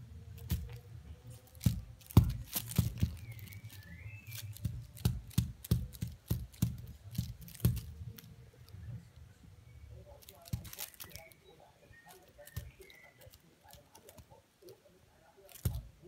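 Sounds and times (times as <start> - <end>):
cat batting feather toy: 0.4 - 8.3.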